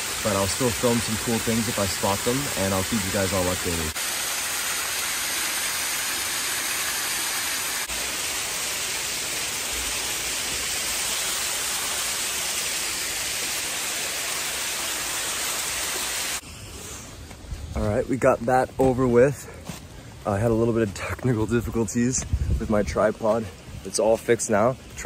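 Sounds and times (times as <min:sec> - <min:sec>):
waterfall rushing: 0:00.0 - 0:16.4.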